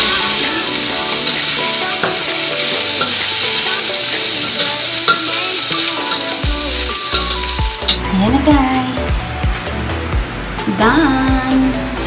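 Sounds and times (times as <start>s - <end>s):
green beans sizzling in a wok: 0.0s - 8.0s.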